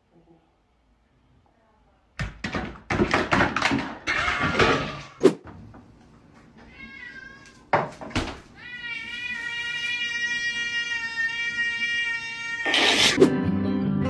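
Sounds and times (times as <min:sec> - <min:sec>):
cat meowing: 0:06.6 - 0:07.7, 0:08.6 - 0:13.2.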